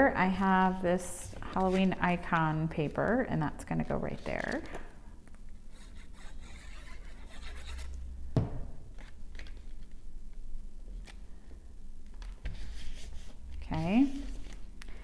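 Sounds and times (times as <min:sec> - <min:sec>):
paper rustling and rubbing: 0:01.3 - 0:03.2, 0:05.6 - 0:08.0, 0:12.4 - 0:14.8.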